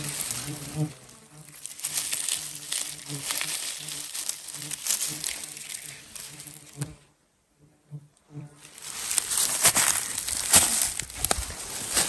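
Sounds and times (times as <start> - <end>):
footsteps on dry grass: 0.0 - 7.0, 8.6 - 12.0
twigs crackling underfoot: 0.0 - 7.0, 8.6 - 12.0.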